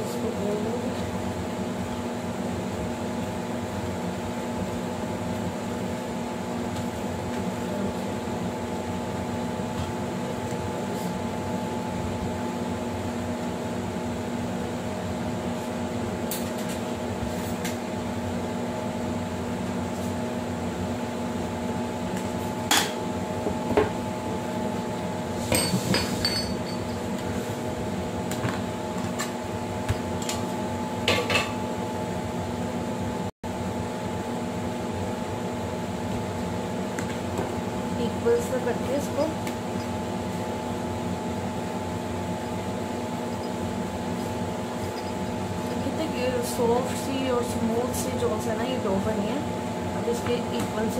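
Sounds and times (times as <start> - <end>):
machine hum: 0.0 - 50.9
kitchen knocks and clinks: 25.5 - 26.9.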